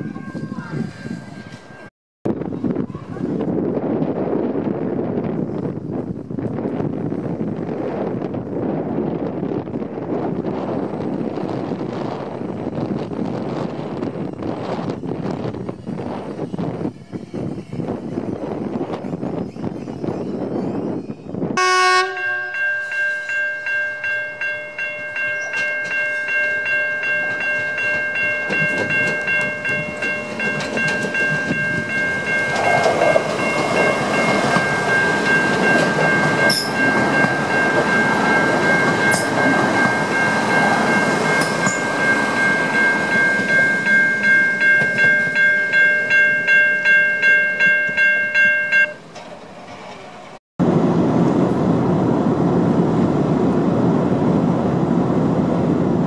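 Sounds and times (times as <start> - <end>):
diesel railcar passing: 0.0 - 56.0
level crossing warning bell: 21.6 - 49.3.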